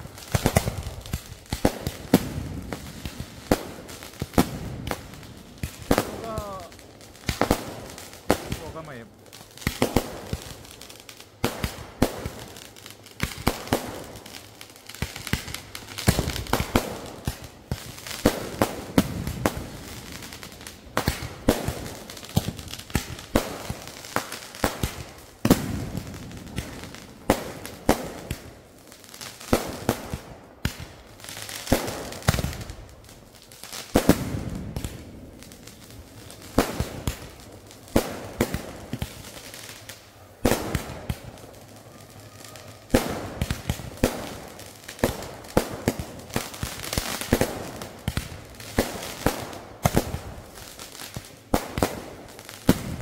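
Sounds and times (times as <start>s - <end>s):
fireworks bangs and crackles: 0.0s - 53.0s.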